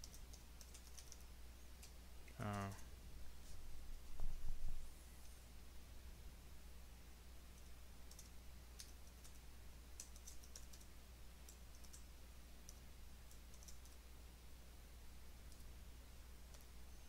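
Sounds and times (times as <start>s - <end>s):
steady low hum: 0.0s - 17.0s
keyboard keystrokes: 10.0s - 10.9s, 12.7s - 14.0s.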